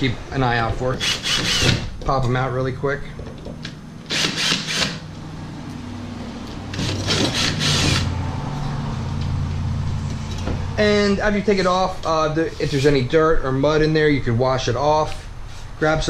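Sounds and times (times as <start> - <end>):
drill motor humming: 1.0 - 1.9, 4.1 - 5.0, 6.7 - 8.1
grinding bursts: 6.7 - 8.2.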